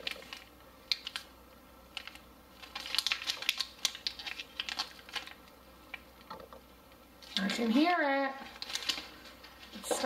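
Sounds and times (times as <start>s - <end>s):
plastic bag crinkling clicks: 1.9s - 5.4s, 8.6s - 9.1s.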